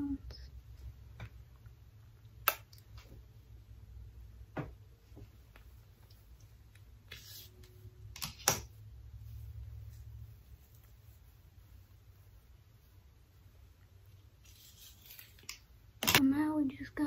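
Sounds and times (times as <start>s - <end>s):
clicks and taps from hair items: 2.4s - 3.2s.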